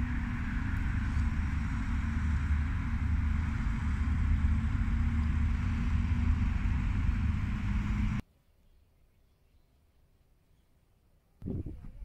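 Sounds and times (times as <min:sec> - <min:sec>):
road traffic rumble: 0:00.0 - 0:08.2.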